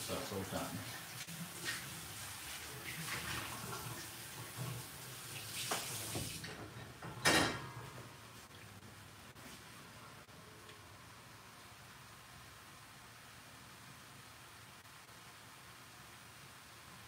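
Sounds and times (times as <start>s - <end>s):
tap running into sink: 5.6s - 7.3s.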